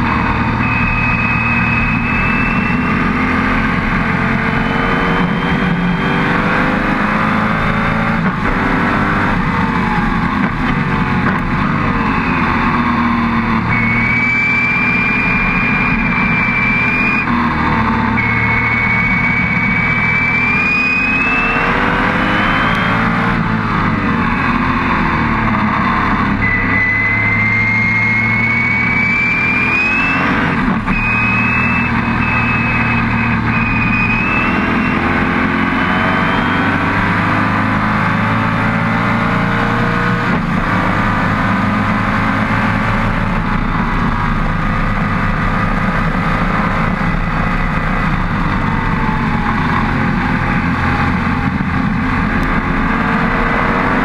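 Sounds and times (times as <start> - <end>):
high whine: 0.0 - 40.7
racing car engine revving: 0.0 - 54.0.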